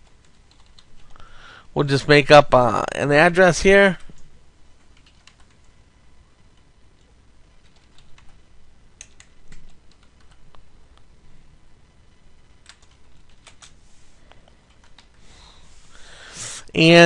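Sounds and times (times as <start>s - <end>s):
keyboard typing: 0.0s - 1.2s, 3.9s - 5.7s, 6.6s - 8.4s, 9.0s - 10.6s, 12.6s - 13.8s, 14.4s - 15.2s.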